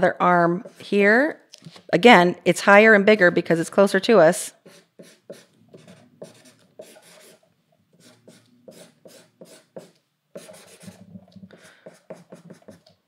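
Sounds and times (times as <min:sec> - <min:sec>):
marker scratching on paper: 0:04.5 - 0:13.0.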